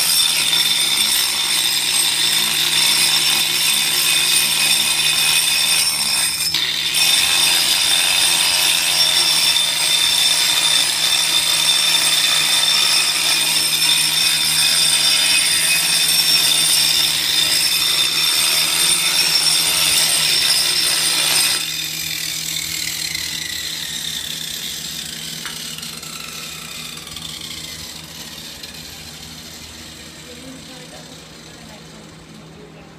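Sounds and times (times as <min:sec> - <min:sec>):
angle grinder grinding mortar: 0:00.0 - 0:32.9
motor winding down whine: 0:21.2 - 0:32.9.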